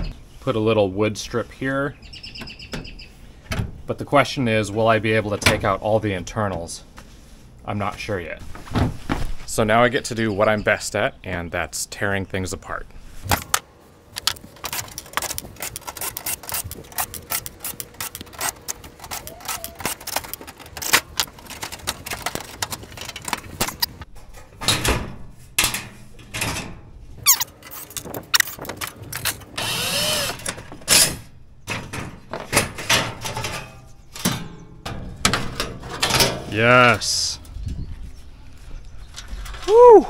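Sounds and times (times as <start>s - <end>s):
metal panels clanking and rattling: 19.9s - 29.6s, 30.4s - 36.6s
cordless drill whirring: 29.6s - 30.4s.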